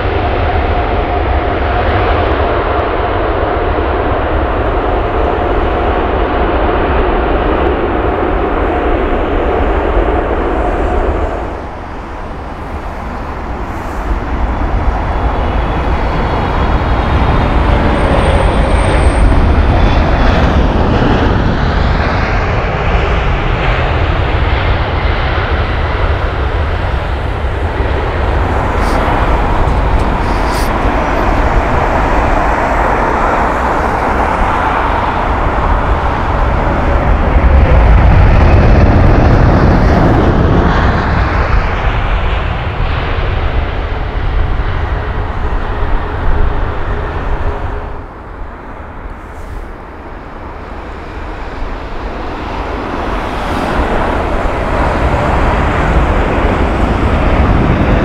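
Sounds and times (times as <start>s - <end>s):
jet engines rumbling: 0.0s - 58.0s.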